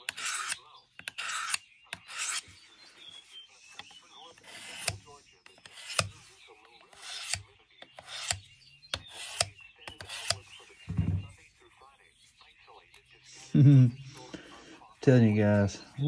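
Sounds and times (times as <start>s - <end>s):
knife blade scraping on sharpener: 0.0s - 2.5s, 4.4s - 6.2s, 6.9s - 8.4s, 9.0s - 10.4s.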